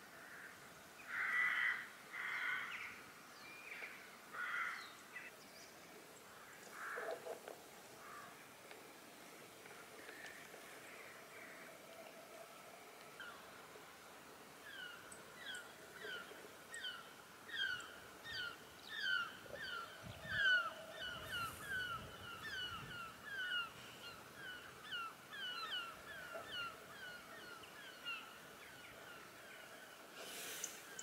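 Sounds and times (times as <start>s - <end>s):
birds calling: 14.6s - 31.0s.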